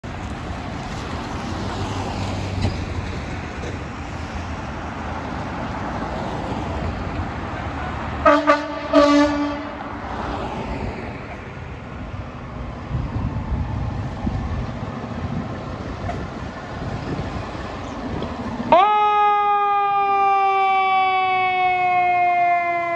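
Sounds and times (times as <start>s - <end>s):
steady traffic: 0.0s - 22.9s
fire truck air horn blasts: 8.2s - 9.9s.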